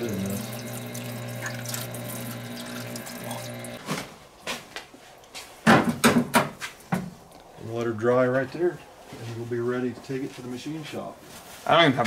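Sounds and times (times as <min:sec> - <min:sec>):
liquid pouring: 0:00.0 - 0:03.8
pump humming: 0:00.0 - 0:03.8.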